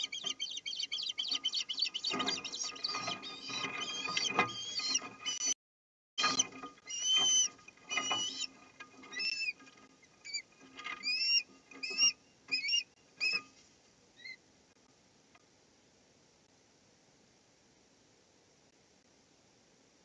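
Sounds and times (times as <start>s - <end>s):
ospreys whistled chirps: 0.0s - 5.6s, 6.2s - 8.5s, 11.0s - 13.4s.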